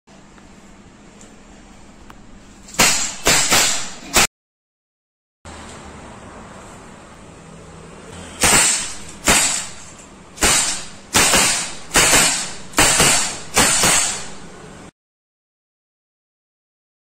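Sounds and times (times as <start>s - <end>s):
air revolver shots: 2.7s - 4.3s, 8.4s - 14.4s.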